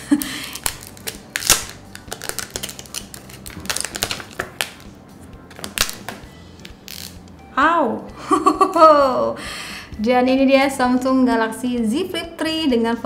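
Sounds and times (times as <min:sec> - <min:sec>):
plastic film peeling crackles: 0:00.0 - 0:04.9, 0:05.5 - 0:07.2.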